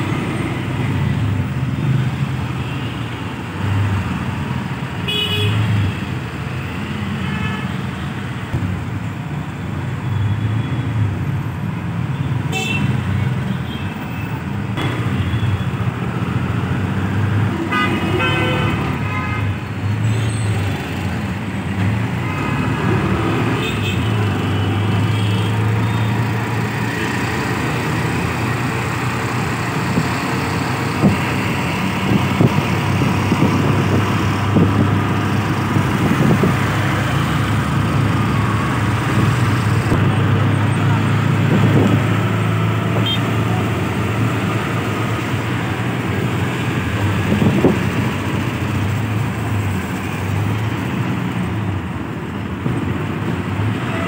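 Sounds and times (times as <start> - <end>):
engine and road drone: 0.0 - 7.4, 14.1 - 54.0
vehicle horns honking: 17.7 - 19.5, 43.0 - 43.4.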